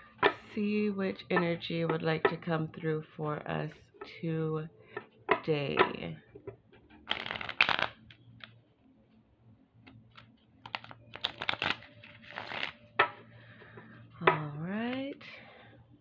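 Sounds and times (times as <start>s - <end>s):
cards shuffled by hand: 7.0s - 8.5s, 9.8s - 12.8s.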